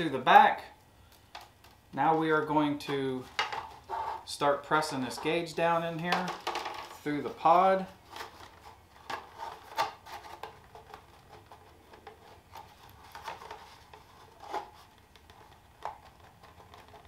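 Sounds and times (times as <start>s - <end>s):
plastic clicks and scrapes: 8.1s - 17.0s.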